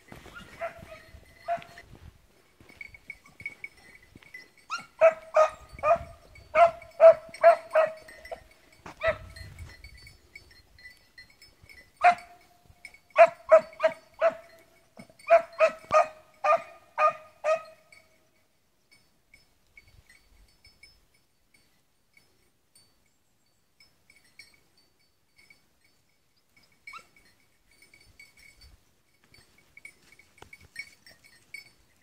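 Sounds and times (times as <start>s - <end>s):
dog barking high-pitched: 0.4s - 1.8s, 4.7s - 8.1s, 9.0s - 9.3s, 12.0s - 12.4s, 13.2s - 14.5s, 15.3s - 17.8s.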